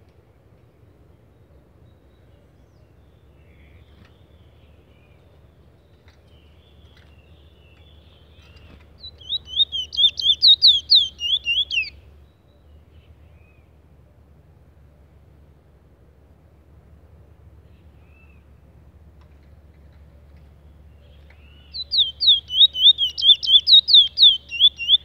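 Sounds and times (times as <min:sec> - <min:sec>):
finch chirps: 0:05.8 - 0:13.1, 0:20.3 - 0:25.0.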